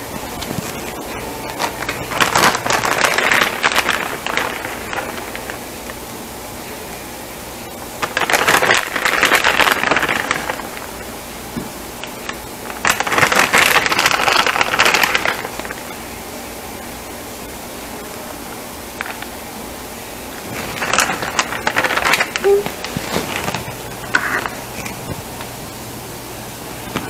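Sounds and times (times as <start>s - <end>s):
plastic bag crinkling: 0.0s - 6.0s, 8.0s - 11.1s, 12.0s - 16.0s, 20.3s - 25.8s.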